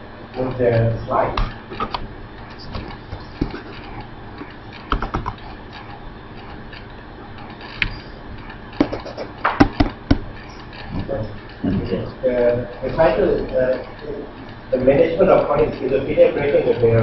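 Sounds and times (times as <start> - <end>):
computer keyboard and mouse clicks: 2.6 - 6.8, 7.4 - 11.1.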